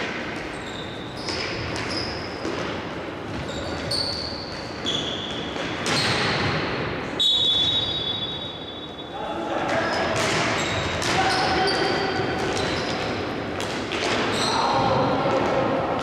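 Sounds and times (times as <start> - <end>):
hockey sticks knocking ball: 13.6 - 14.4.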